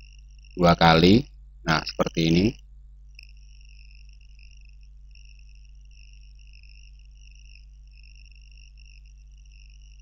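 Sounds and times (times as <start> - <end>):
high-pitched whine: 0.0 - 2.6
low steady hum: 0.0 - 10.0.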